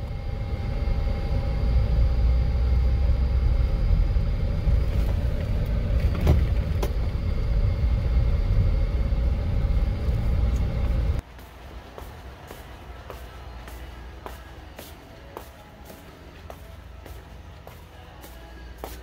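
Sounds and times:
car engine and road rumble: 0:00.0 - 0:11.2.

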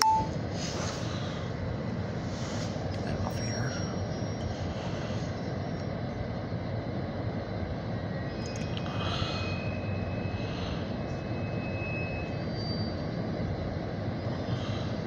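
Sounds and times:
diesel locomotive engine rumble: 0:00.0 - 0:15.0
high squeal of wheels on rails: 0:02.2 - 0:06.1, 0:08.0 - 0:15.0.

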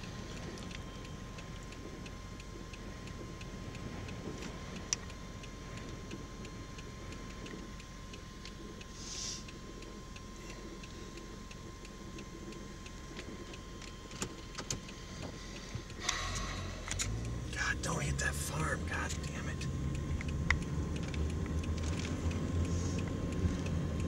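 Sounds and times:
faint regular ticking: 0:00.0 - 0:24.0
short hiss: 0:09.0 - 0:09.4.

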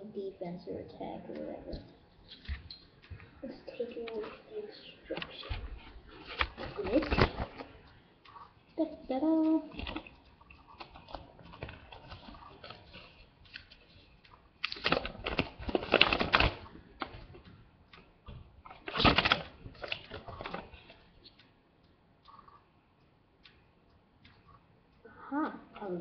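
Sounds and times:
paper rustling and crinkling: 0:05.1 - 0:07.8, 0:10.8 - 0:17.5, 0:18.7 - 0:20.9.

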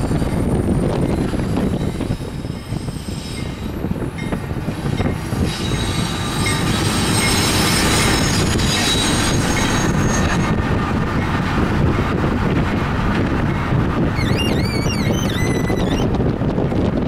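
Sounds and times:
freight train rumbling on rails: 0:00.0 - 0:17.0
high wheel squeal: 0:05.4 - 0:10.6, 0:14.1 - 0:16.2.

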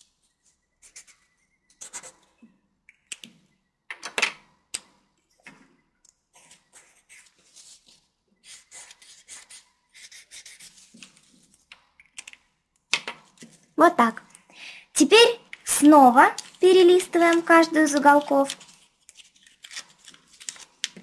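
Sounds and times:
marker scratching on paper: 0:00.8 - 0:02.3, 0:06.4 - 0:07.8, 0:08.4 - 0:11.3.

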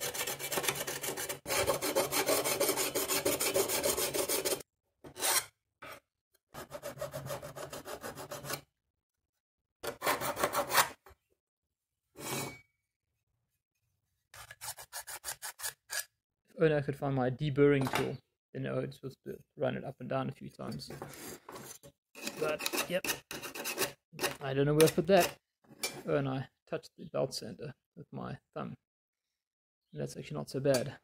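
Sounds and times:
hand file rasping on metal: 0:00.0 - 0:05.5, 0:06.6 - 0:08.7, 0:09.8 - 0:11.0, 0:14.4 - 0:16.1, 0:21.1 - 0:25.4.

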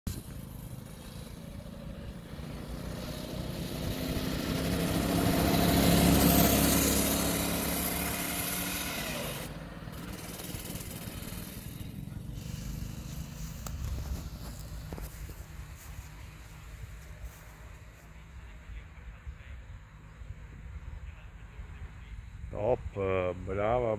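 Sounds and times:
small vehicle engine passing by: 0:00.1 - 0:22.1.

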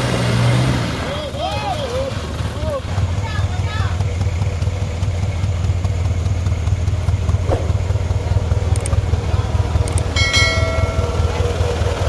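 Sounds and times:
vehicle engine droning: 0:00.0 - 0:12.0
brief high-pitched tone: 0:10.2 - 0:11.6.

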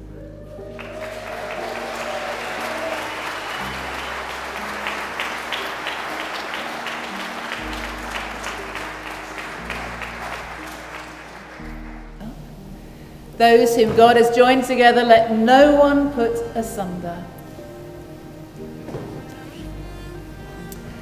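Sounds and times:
congregation applauding: 0:00.0 - 0:12.2
soft instrumental music: 0:00.0 - 0:21.0.

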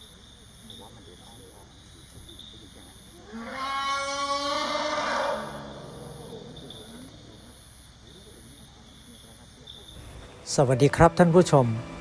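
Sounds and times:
elephant calling: 0:02.6 - 0:07.5.

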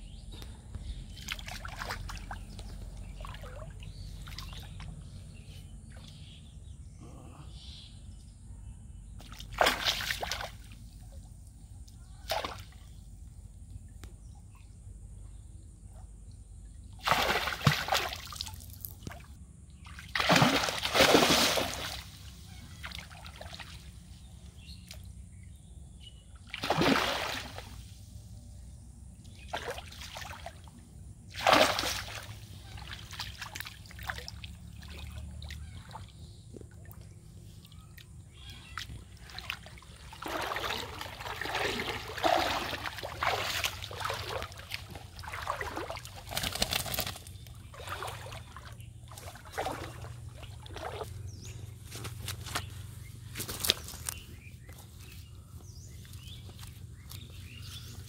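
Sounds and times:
fish splashing in water: 0:09.2 - 0:10.7, 0:17.0 - 0:19.2, 0:19.9 - 0:23.8, 0:26.5 - 0:27.8, 0:31.3 - 0:36.1, 0:38.3 - 0:51.4.

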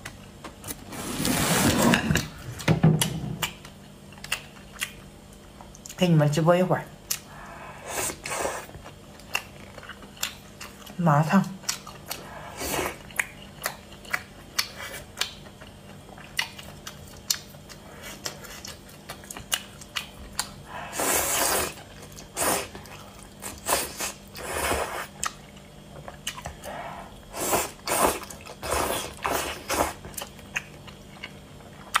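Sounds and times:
wet chewing and smacking: 0:03.0 - 0:06.0, 0:08.6 - 0:11.0, 0:11.6 - 0:12.4, 0:13.0 - 0:20.8, 0:25.0 - 0:26.7, 0:27.8 - 0:32.0.

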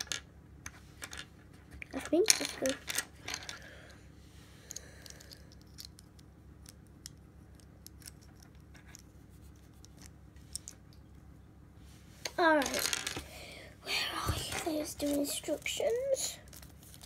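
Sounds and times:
small plastic parts clicking: 0:04.7 - 0:11.1.

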